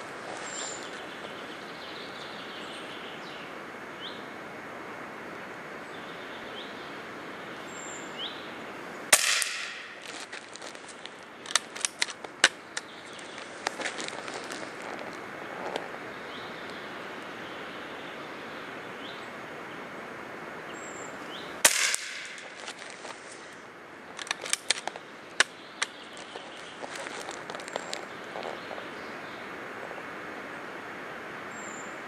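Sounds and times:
background hiss: 0.0s - 32.0s
air rifle shot: 9.1s - 10.0s, 21.6s - 22.5s.

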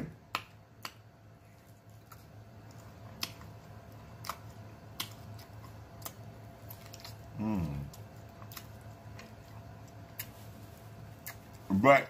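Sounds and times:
low steady hum: 0.0s - 12.0s
chewing meat: 0.1s - 11.8s
wet mouth clicks and smacks: 3.2s - 3.5s.

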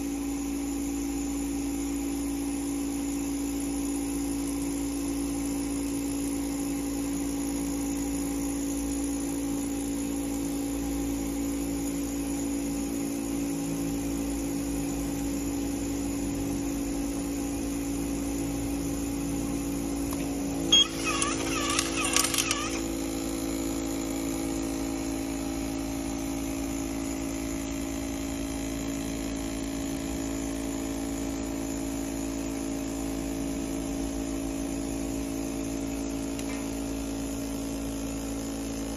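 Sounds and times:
electrical machine hum: 0.0s - 28.7s
electric screwdriver whirring: 20.1s - 23.0s
sharp click: 20.8s - 22.9s.

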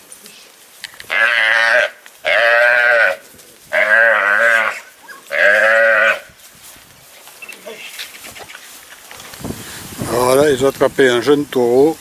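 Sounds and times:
calf bawling: 1.1s - 6.3s.

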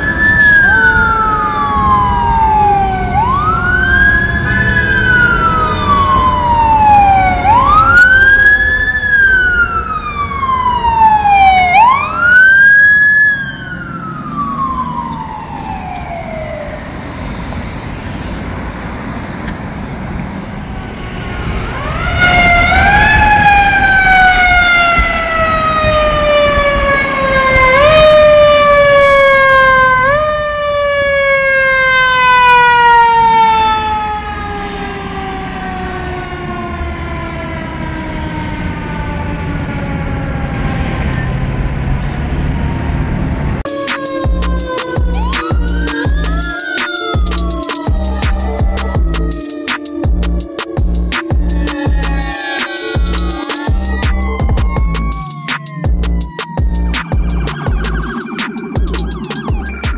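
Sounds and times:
truck engine rumble: 0.0s - 29.3s, 32.7s - 59.9s
fire truck siren wailing: 0.0s - 59.9s.

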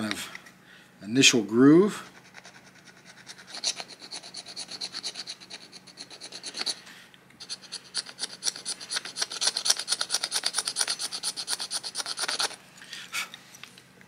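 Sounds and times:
stone tool scraping bone: 2.0s - 6.8s, 7.4s - 12.6s.

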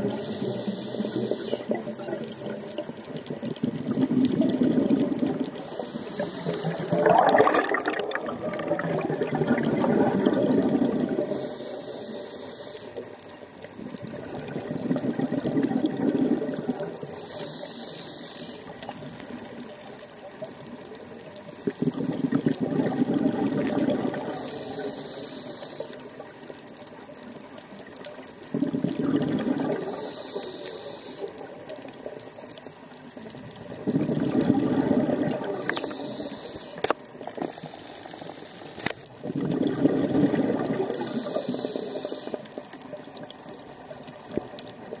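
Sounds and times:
regulator inhalation hiss: 0.0s - 3.2s, 5.6s - 7.1s, 11.2s - 13.2s, 16.6s - 18.8s, 24.1s - 26.2s, 29.7s - 31.5s, 35.5s - 36.9s, 37.5s - 39.0s, 40.9s - 42.6s
exhaled air bubbling: 0.0s - 12.6s, 13.2s - 17.9s, 18.6s - 45.0s.

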